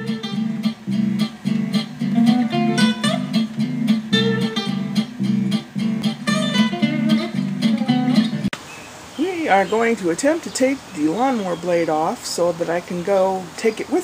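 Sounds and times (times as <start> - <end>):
acoustic guitar chords: 0.0 - 8.6.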